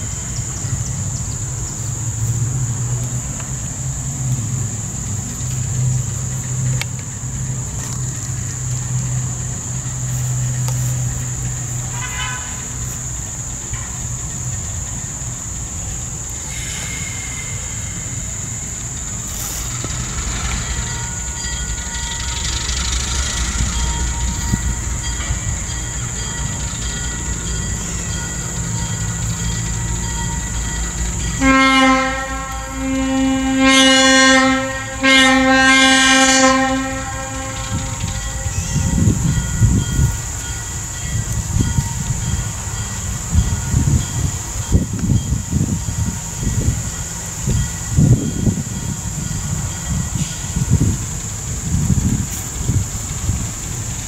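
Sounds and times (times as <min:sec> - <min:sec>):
locomotive engine idling: 0:00.0 - 0:54.0
train horn blasts: 0:11.8 - 0:13.0, 0:29.8 - 0:40.2.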